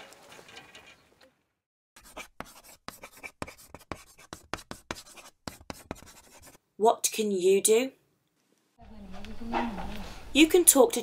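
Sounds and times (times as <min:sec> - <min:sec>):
chalk scratching on a blackboard: 0:02.0 - 0:06.6
faint outdoor ambience: 0:06.6 - 0:11.0.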